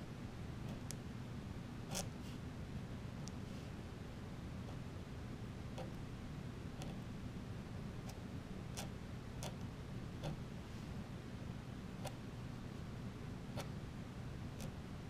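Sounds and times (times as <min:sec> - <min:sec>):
steady low hum: 0:00.0 - 0:15.0
pen nib clicking on paper: 0:01.9 - 0:02.2, 0:05.8 - 0:06.0, 0:06.8 - 0:07.0, 0:08.0 - 0:10.4, 0:12.0 - 0:12.2, 0:13.5 - 0:13.8, 0:14.6 - 0:14.8.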